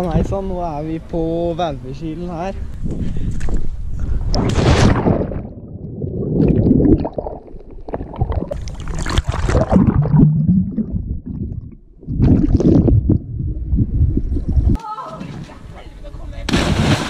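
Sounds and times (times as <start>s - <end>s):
muffled underwater churning and bubbling: 5.0s - 14.8s.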